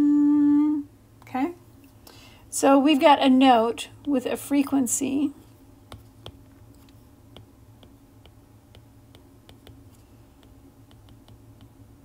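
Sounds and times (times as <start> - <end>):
stylus tapping on glass screen: 5.9 - 11.8.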